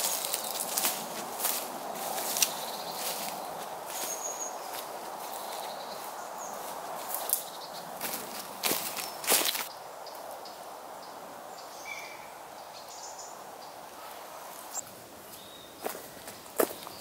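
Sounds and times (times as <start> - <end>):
footsteps on leaf litter: 0.0 - 9.7, 15.3 - 17.0.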